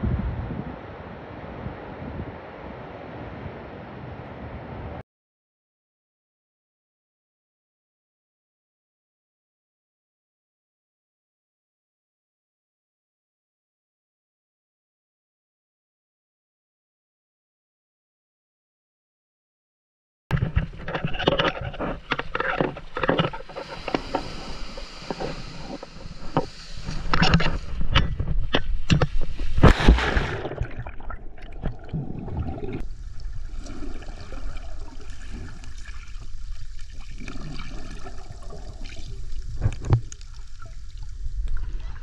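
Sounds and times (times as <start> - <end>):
underwater bubbling and gurgling: 20.4 - 42.0
water splashing and sloshing: 20.4 - 42.0
loud splash: 29.4 - 31.7.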